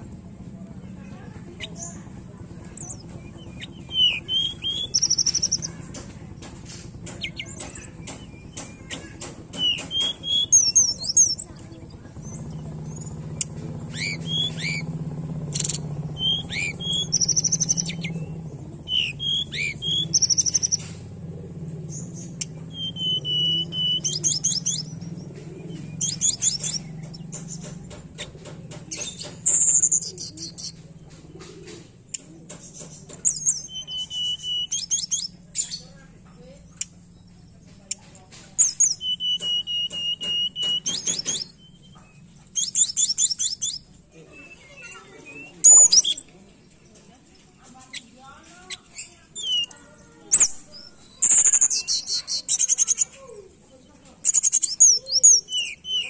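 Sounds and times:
steady low hum: 0:00.0 - 0:47.6
bird whistles and trills: 0:01.4 - 0:46.9, 0:47.8 - 0:56.0
sharp clicks: 0:02.6 - 0:35.8, 0:36.7 - 0:43.9.

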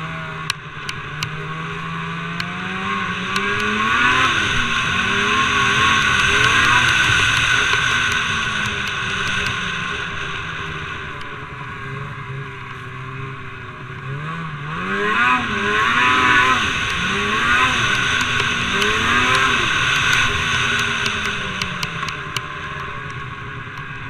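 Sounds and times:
snowmobile engine revving: 0:00.0 - 0:24.0
track and wind hiss: 0:00.0 - 0:24.0.

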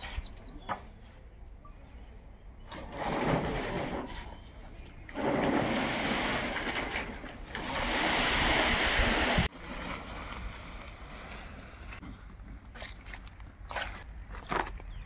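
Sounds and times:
plastic sheet dragged over bricks: 0:02.7 - 0:04.4, 0:05.1 - 0:12.0.

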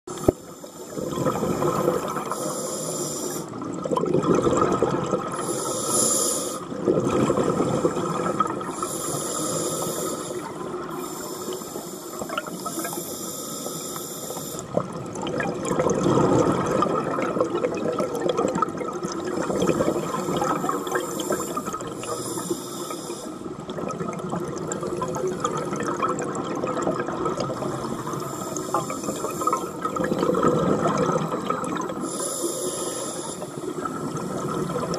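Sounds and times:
underwater wash: 0:00.1 - 0:34.9
exhaled bubbles: 0:00.2 - 0:02.5, 0:03.4 - 0:06.0, 0:06.6 - 0:12.9, 0:14.5 - 0:22.6, 0:23.4 - 0:32.3, 0:33.2 - 0:34.9
regulator hissing inhalations: 0:02.3 - 0:03.5, 0:05.4 - 0:06.7, 0:08.8 - 0:14.7, 0:20.0 - 0:23.5, 0:32.0 - 0:33.7.

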